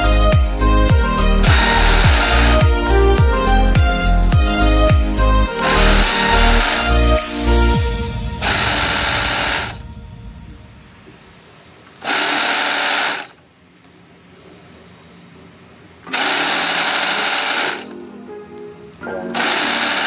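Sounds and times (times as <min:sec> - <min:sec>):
sewing machine stitching: 0:01.4 - 0:02.6, 0:05.6 - 0:06.9, 0:12.0 - 0:13.4, 0:16.1 - 0:17.9, 0:19.4 - 0:20.0.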